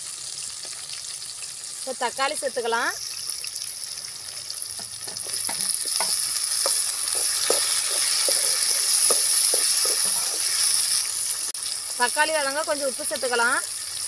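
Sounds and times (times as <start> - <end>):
hot oil sizzling: 0.0 - 14.0
spatula scraping metal pan: 4.8 - 11.0.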